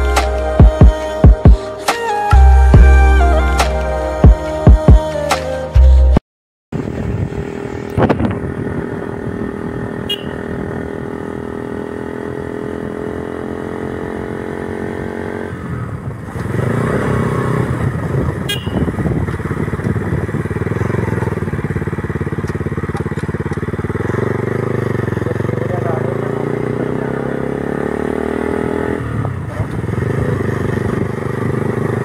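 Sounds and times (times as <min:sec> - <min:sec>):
motorcycle engine running: 0:06.8 - 0:32.0.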